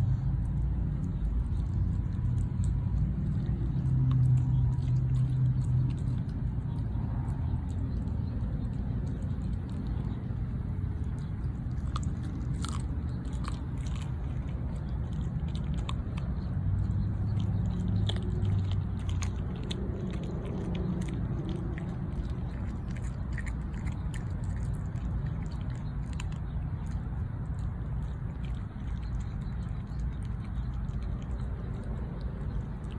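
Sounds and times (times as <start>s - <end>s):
dog chewing bone: 0.0s - 32.9s
steady low rumble: 0.0s - 32.9s.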